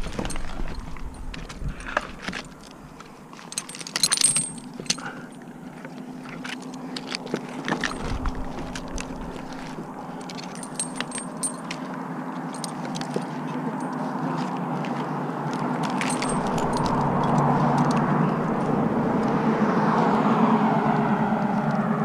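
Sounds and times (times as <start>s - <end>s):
climbing hardware clinking: 0.0s - 19.4s
steady low hum: 7.8s - 12.8s, 16.0s - 20.4s.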